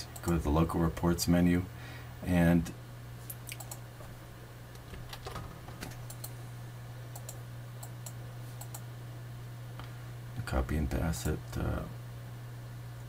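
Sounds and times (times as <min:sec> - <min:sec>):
steady low hum: 0:00.0 - 0:13.0
mouse and keyboard clicks: 0:03.4 - 0:03.8.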